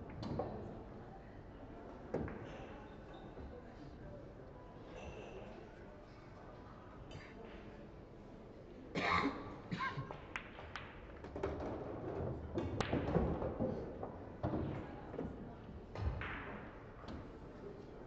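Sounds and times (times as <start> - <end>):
knocks and taps in hall: 10.0 - 17.3.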